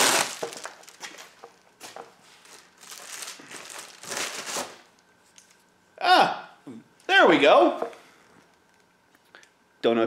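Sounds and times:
plastic mailer crinkling: 0.0 - 1.6, 2.4 - 5.0.

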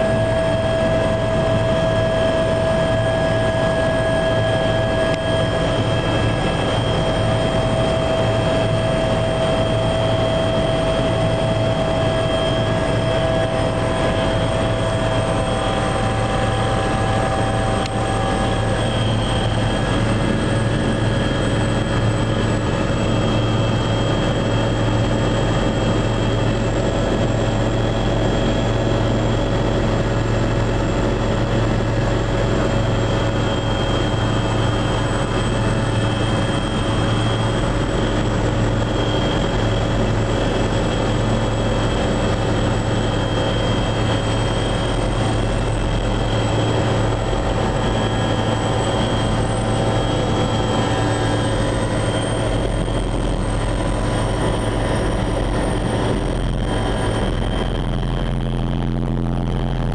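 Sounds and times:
helicopter engine and rotor drone: 0.0 - 59.9
high engine whine: 0.0 - 59.9.

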